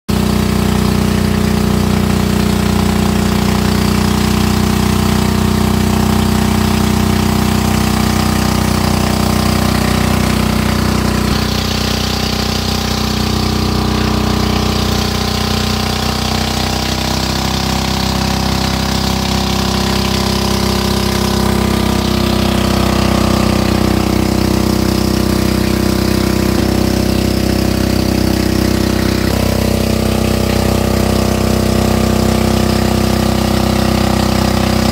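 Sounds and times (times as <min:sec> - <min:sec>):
boat engine running: 0:00.1 - 0:34.9.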